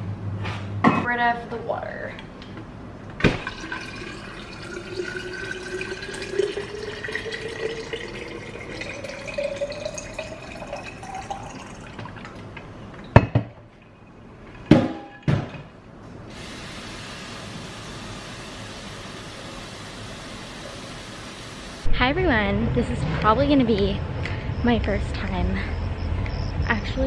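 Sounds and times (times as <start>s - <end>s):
water pouring into bottle: 3.4s - 12.5s.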